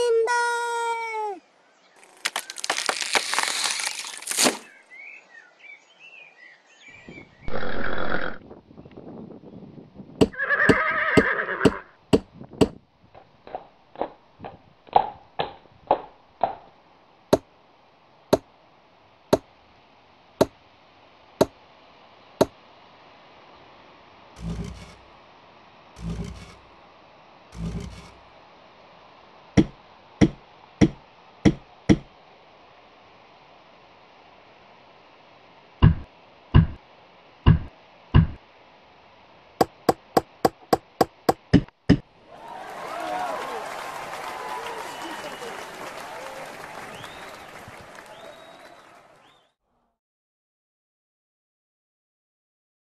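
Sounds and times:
heavy wooden thuds: 0:29.6 - 0:32.1, 0:35.8 - 0:36.8, 0:37.5 - 0:38.4, 0:39.6 - 0:42.1
sharp bright knocks: 0:29.6 - 0:32.1.

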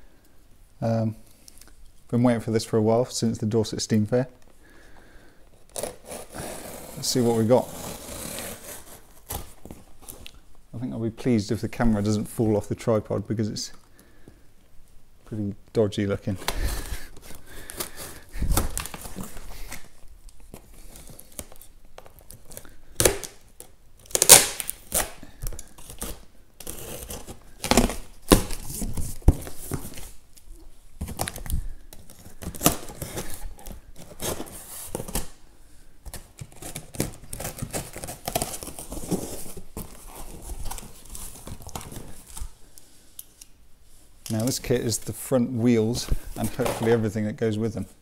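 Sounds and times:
packing tape ripping: 0:05.7 - 0:10.4, 0:16.4 - 0:30.2, 0:31.0 - 0:35.4, 0:36.1 - 0:42.5.

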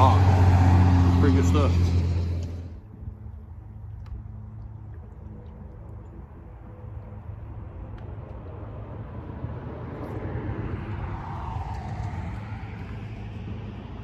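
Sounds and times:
vehicle passing with rushing noise: 0:00.0 - 0:02.9, 0:07.5 - 0:14.0.

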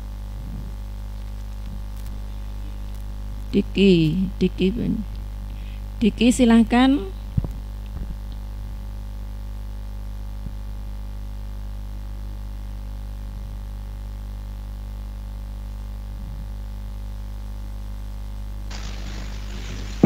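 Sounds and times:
electrical hum: 0:00.0 - 0:20.0
hiss: 0:18.7 - 0:20.0.

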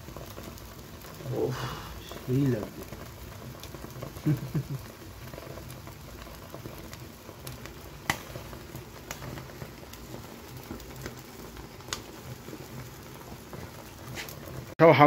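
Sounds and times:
charcoal fire crackling and sizzling: 0:00.0 - 0:15.0
sharp pops: 0:08.0 - 0:08.4.

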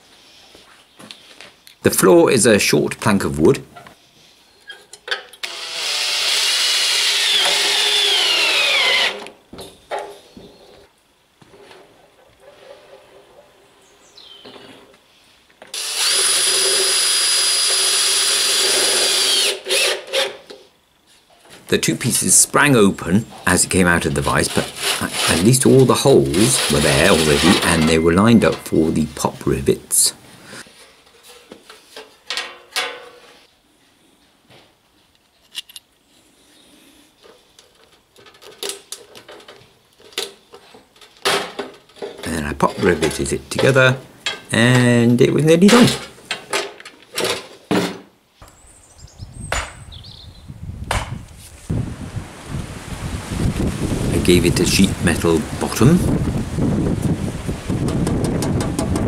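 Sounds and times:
cordless drill whining: 0:05.4 - 0:09.3, 0:15.7 - 0:20.3.

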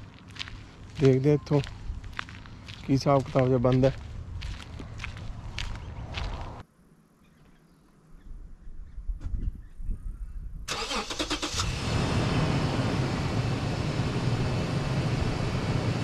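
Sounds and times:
car engine cranking and running: 0:10.7 - 0:16.0.

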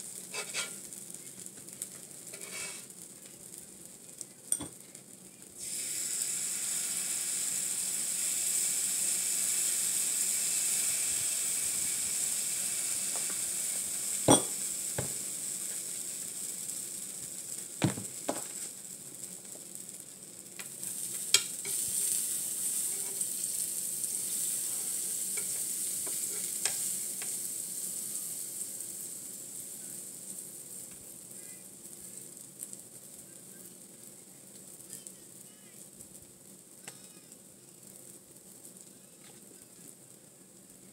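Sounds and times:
batter sizzling on griddle: 0:00.0 - 0:40.9.

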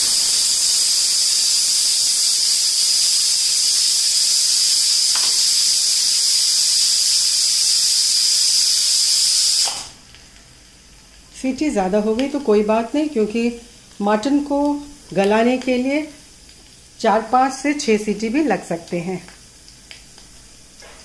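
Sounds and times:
pressure cooker whistling: 0:00.0 - 0:10.0.

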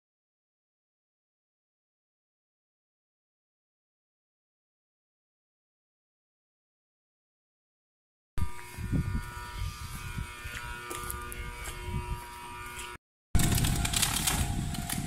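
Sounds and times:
train equipment buzzing hum: 0:08.4 - 0:15.0.

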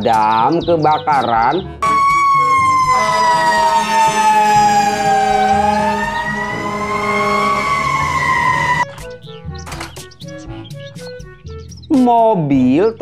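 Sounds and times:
fire engine siren wailing: 0:01.8 - 0:08.9.

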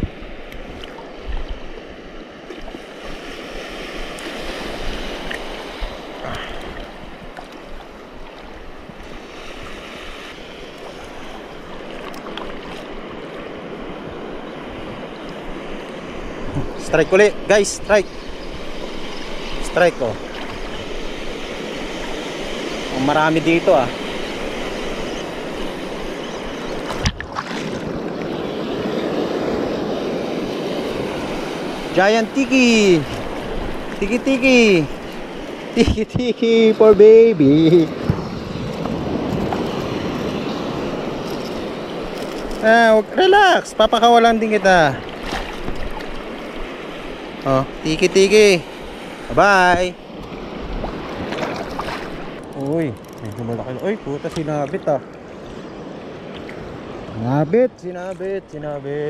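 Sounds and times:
wind buffeting microphone: 0:00.0 - 0:01.8, 0:11.2 - 0:43.1
small waves washing on shore: 0:00.0 - 0:59.0
faint clicks: 0:52.4 - 0:53.6.

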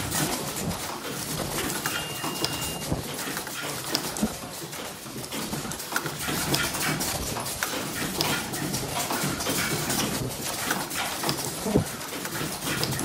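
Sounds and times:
machinery clatter: 0:00.0 - 0:13.0
short high tones: 0:01.9 - 0:02.9.

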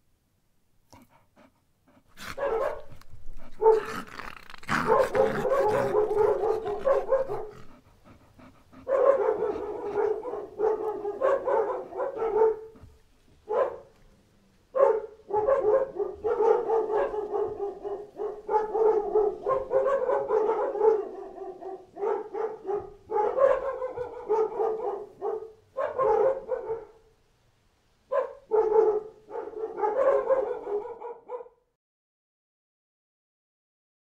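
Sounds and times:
many dogs barking: 0:02.2 - 0:04.0, 0:04.7 - 0:07.8, 0:08.7 - 0:12.8, 0:13.5 - 0:13.9, 0:14.8 - 0:27.0, 0:28.1 - 0:31.6.

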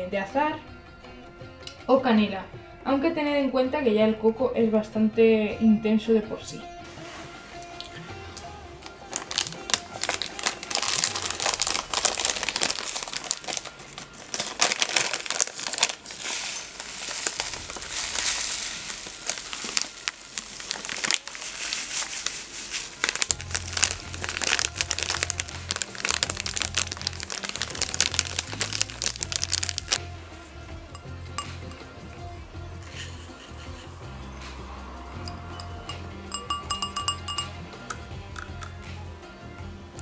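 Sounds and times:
plastic bag crinkling: 0:07.0 - 0:30.0.

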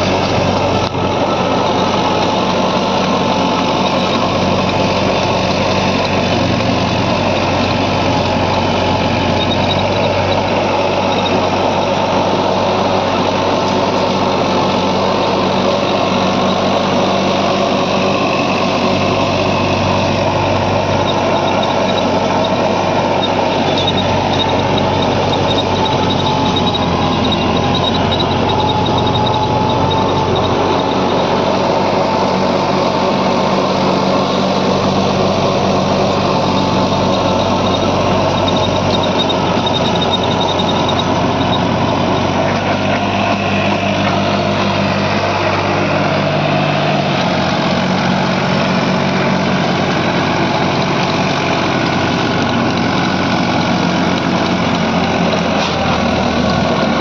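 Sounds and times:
tiller blades churning soil: 0:00.0 - 0:57.0
tractor diesel engine running: 0:00.0 - 0:57.0.

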